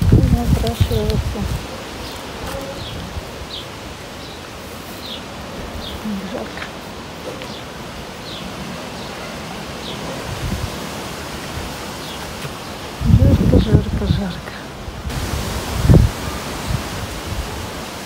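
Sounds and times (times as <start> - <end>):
wind buffeting microphone: 0.0 - 3.6, 9.9 - 18.0
foliage rustling: 0.0 - 18.0.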